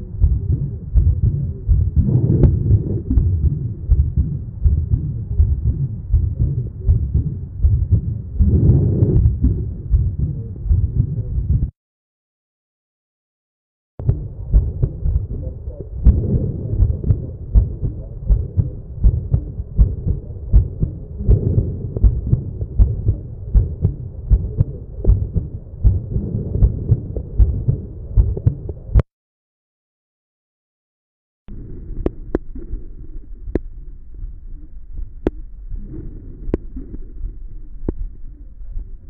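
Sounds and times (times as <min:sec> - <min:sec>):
heartbeat thumps: 0:00.0 - 0:11.7, 0:14.0 - 0:29.0.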